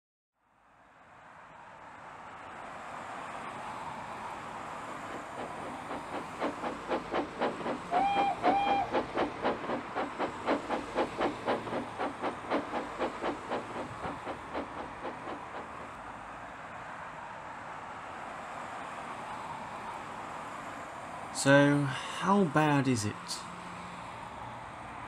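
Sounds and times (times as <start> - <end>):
steam locomotive chuffing: 4.7 - 16.2
steady steam hiss: 5.0 - 16.0
steam whistle toots: 6.4 - 11.6.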